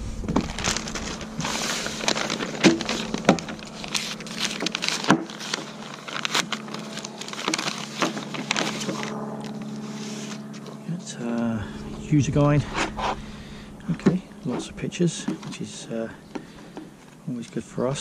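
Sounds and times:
paper and plastic packaging rustling: 0.0 - 10.8.

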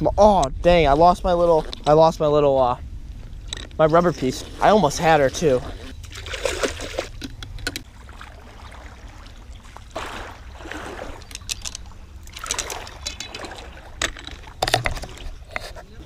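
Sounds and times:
steady low rumble: 0.0 - 5.8
water splashing around wading legs: 3.8 - 15.5.

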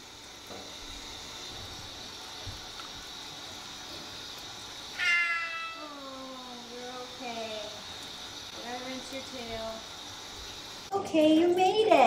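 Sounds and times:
water running: 0.0 - 12.0
cat meowing: 5.0 - 6.1.

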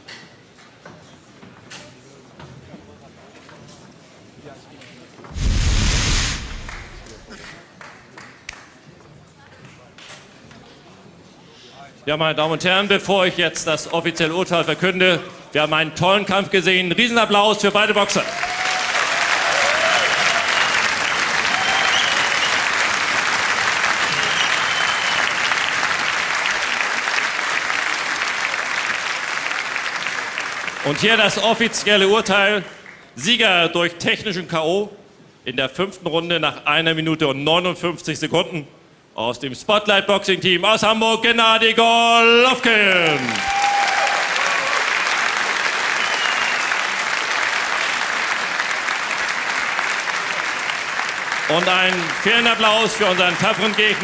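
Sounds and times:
crowd applauding: 6.4 - 8.6, 18.2 - 31.8, 43.0 - 54.0.

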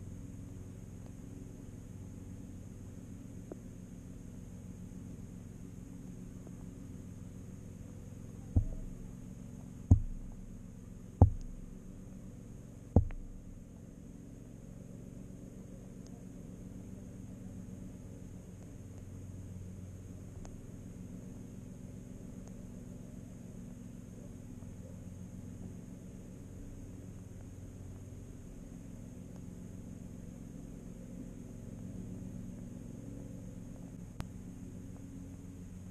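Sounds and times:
faint high whine: 0.0 - 35.9
low underwater hum: 0.0 - 35.9
faint clicks: 0.9 - 1.2, 11.2 - 12.0, 12.9 - 13.6, 18.4 - 20.7, 22.2 - 22.7, 33.7 - 35.1
dull knocks: 8.6 - 9.0, 9.9 - 10.4, 11.2 - 11.6, 13.0 - 13.4.

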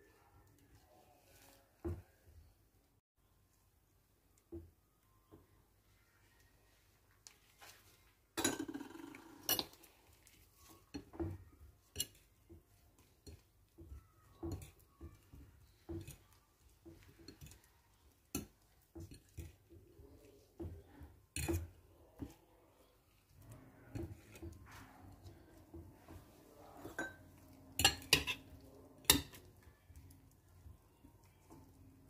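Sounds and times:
fork tapping ceramic bowl: 27.8 - 29.5.

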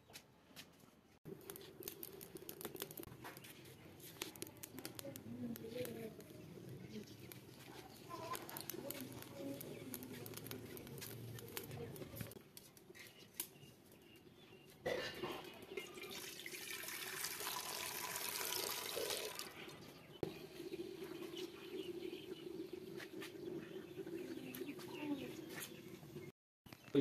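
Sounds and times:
water pouring into metal pot: 15.7 - 19.6.

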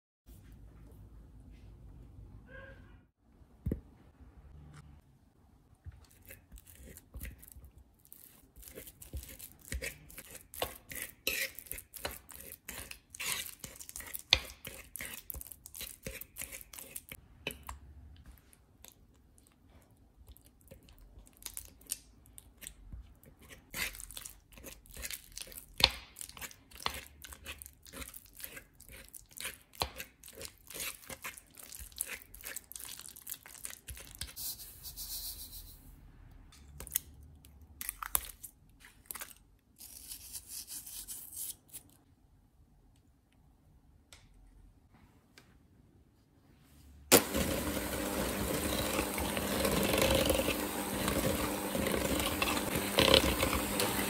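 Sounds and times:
soft squishing: 4.6 - 34.4, 36.6 - 42.0
fork scraping wooden bowl: 8.2 - 17.2, 23.2 - 25.2, 26.3 - 32.7, 48.7 - 54.0.

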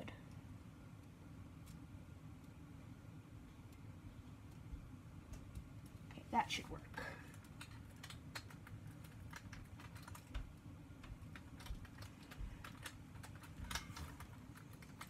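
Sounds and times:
small plastic parts clicking: 7.3 - 15.0.

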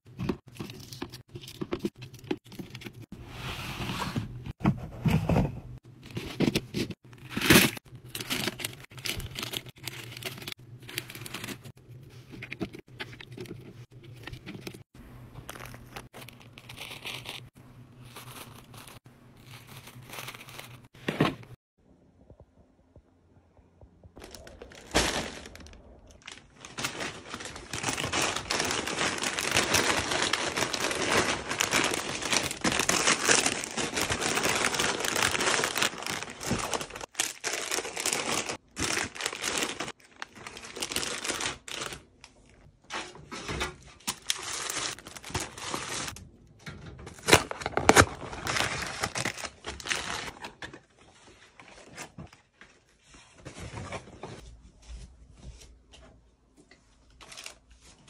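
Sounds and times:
plastic bags crinkling: 24.2 - 42.6, 44.0 - 46.2, 47.1 - 50.5.

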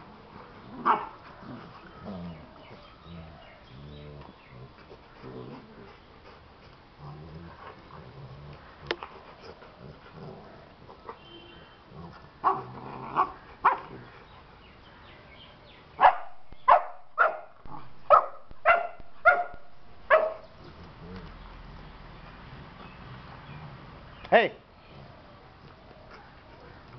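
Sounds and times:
dogs barking in sharp yips: 0.8 - 1.2, 16.0 - 20.4.

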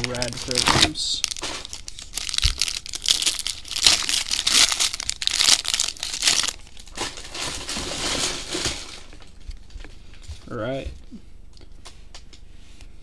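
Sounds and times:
wrapper being torn and crinkled: 0.0 - 9.4.

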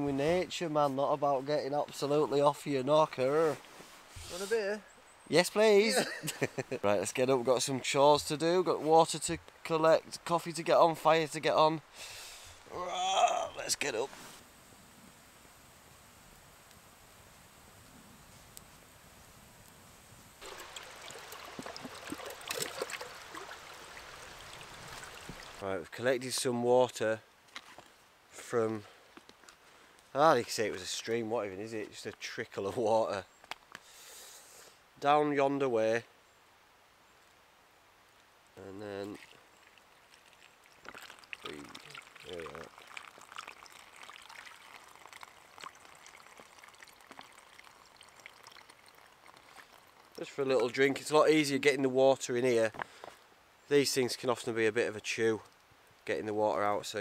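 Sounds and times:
trickling stream: 0.0 - 29.4, 34.7 - 57.0
faint steady hiss: 0.0 - 57.0
water gurgling around a bottle: 20.4 - 25.6, 40.1 - 50.2.

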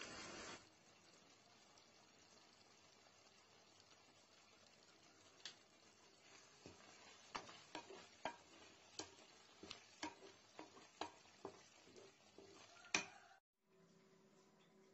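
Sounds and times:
faint steady hiss: 0.0 - 14.9.

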